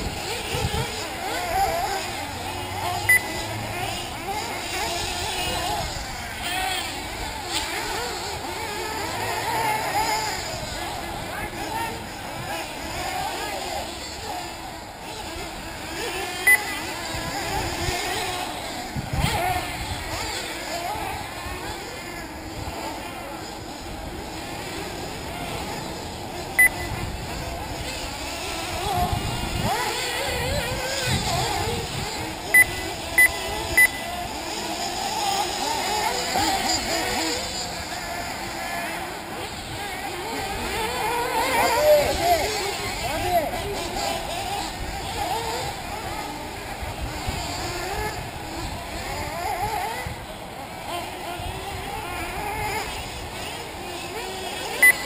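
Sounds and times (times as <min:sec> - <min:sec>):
small engines whining: 0:00.0 - 0:55.0
short electronic beep: 0:03.1 - 0:03.3, 0:16.5 - 0:16.7, 0:26.6 - 0:26.9, 0:32.5 - 0:34.0.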